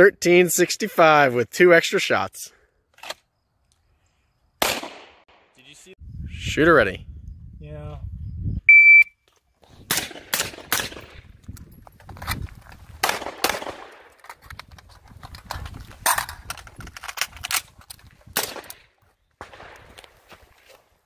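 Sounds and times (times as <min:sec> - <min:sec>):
gunshots: 0:04.6 - 0:05.6, 0:09.9 - 0:11.3, 0:13.0 - 0:14.1, 0:18.4 - 0:18.8, 0:19.4 - 0:19.9
shot timer beep: 0:08.7 - 0:09.2.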